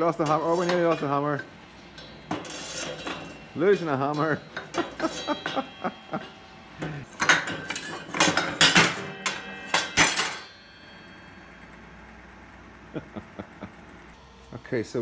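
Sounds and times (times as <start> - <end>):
hammers clanking against metal arm: 0.0 - 11.0
sharp metal strikes: 0.0 - 11.9
steady hum: 0.0 - 15.0.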